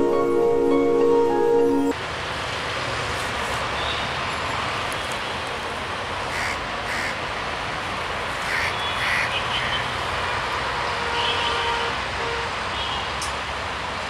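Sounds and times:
crows cawing: 6.3 - 7.2, 8.5 - 9.8.

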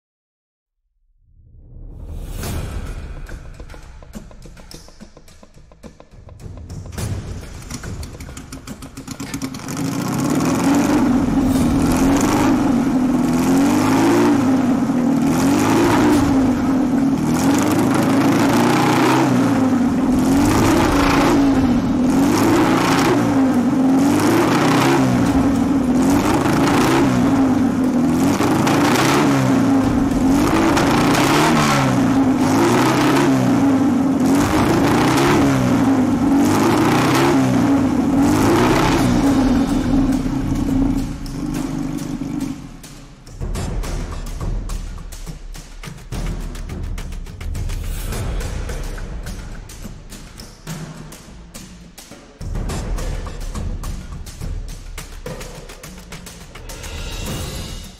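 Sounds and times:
car engine revving: 6.7 - 44.0.

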